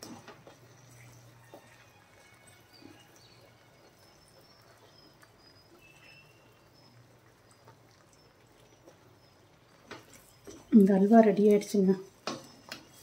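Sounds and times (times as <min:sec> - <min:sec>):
faint high chirps: 0:00.6 - 0:10.9.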